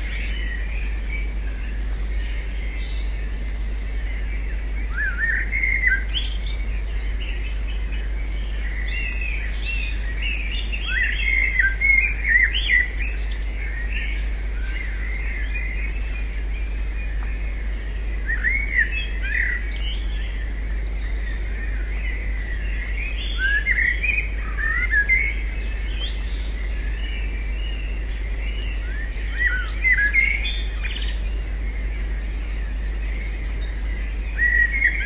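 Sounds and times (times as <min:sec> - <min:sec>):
songbirds chirping: 0:00.0 - 0:35.0
steady low hum: 0:00.0 - 0:35.0.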